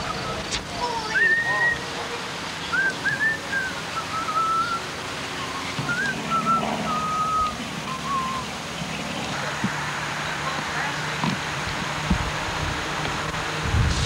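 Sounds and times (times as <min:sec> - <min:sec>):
person whistling a tune: 0:02.7 - 0:04.8, 0:05.4 - 0:08.5.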